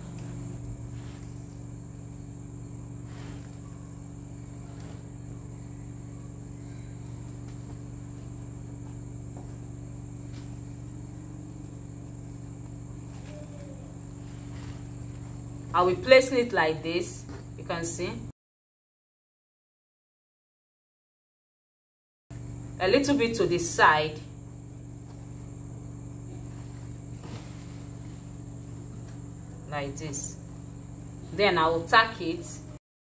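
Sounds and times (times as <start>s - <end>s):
low electrical hum: 0.0s - 18.3s, 22.3s - 32.8s
fabric rustling: 26.4s - 29.4s.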